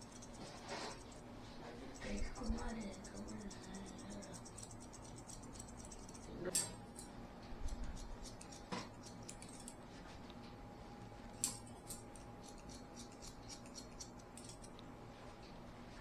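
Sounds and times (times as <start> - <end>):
scissors snipping hair: 0.0 - 1.2, 1.9 - 9.8, 11.3 - 14.9.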